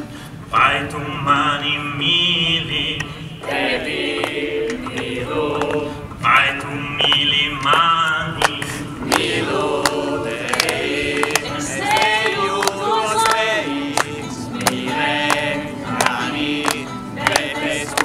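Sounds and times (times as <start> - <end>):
group singing: 0.5 - 18.0
sharp hand claps: 4.1 - 5.8, 6.4 - 18.0.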